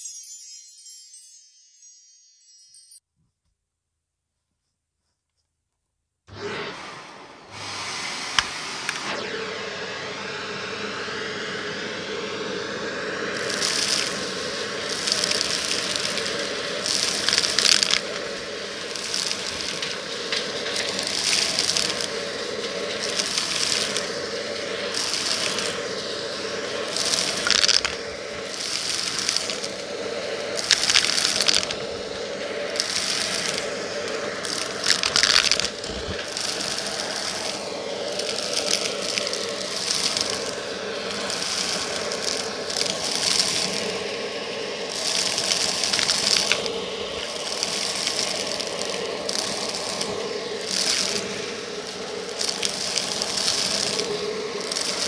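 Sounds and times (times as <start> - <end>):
vacuum cleaner running: 6.3 - 55.0
debris rattling up vacuum: 13.3 - 55.0.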